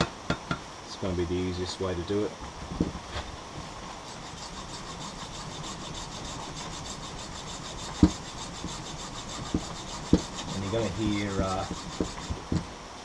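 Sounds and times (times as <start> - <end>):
hacksaw sawing through nylon: 3.7 - 12.7.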